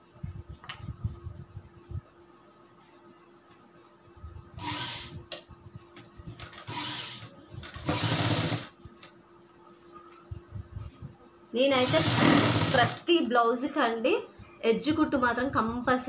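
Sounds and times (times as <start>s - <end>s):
sewing machine stitching: 6.4s - 8.7s, 11.7s - 13.1s.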